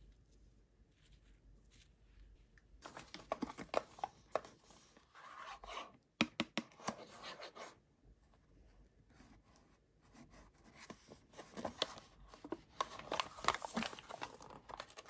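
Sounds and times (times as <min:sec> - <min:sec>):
snack packaging rustling: 0:02.8 - 0:04.6, 0:11.4 - 0:15.0.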